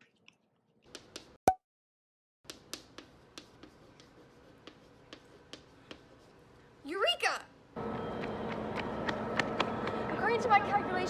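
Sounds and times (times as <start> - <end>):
chalk tapping on blackboard: 0.9 - 1.3, 2.5 - 6.4.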